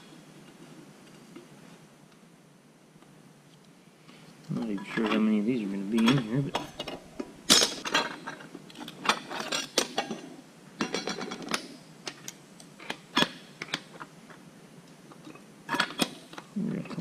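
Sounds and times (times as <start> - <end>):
metal clinks and scrapes: 6.0 - 10.2.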